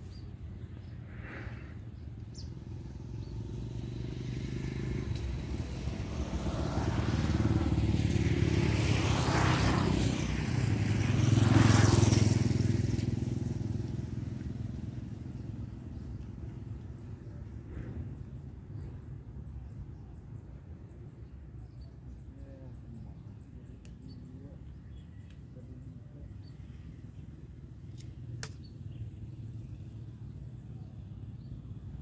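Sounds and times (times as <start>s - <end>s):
motor vehicle passing by: 0.8s - 19.1s.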